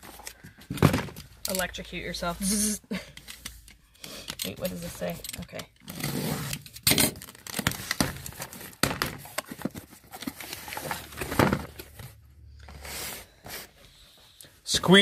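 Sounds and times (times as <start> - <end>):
packing tape tearing: 2.4 - 10.9
cardboard crinkling: 7.2 - 12.2.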